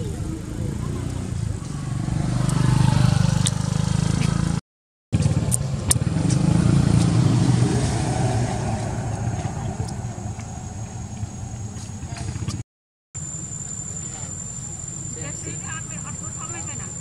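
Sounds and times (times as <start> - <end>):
engine humming: 0.0 - 4.6, 5.2 - 12.6.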